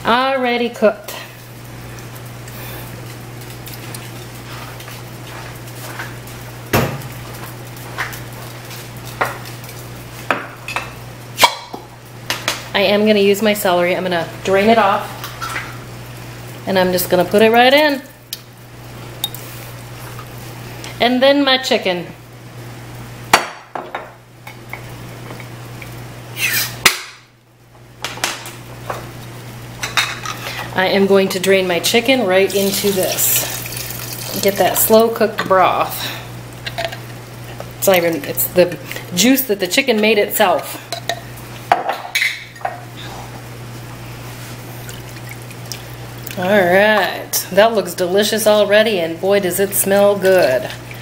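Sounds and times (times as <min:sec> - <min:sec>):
low steady hum: 0:00.0 - 0:23.3, 0:27.3 - 0:51.0
kitchenware clinking: 0:36.6 - 0:37.2, 0:40.9 - 0:42.8.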